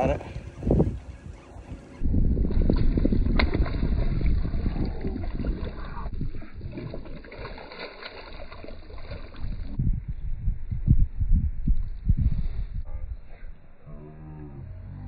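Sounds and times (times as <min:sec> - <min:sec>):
wind rumbling on microphone: 0:00.0 - 0:15.0
fish splashing at water surface: 0:02.5 - 0:09.7.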